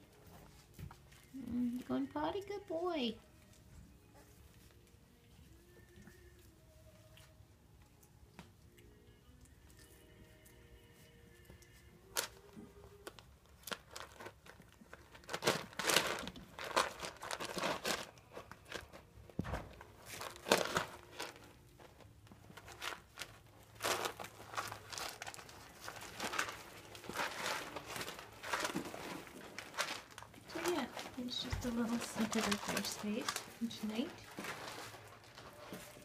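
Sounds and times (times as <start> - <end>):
pellet litter crunching: 13.0 - 36.0.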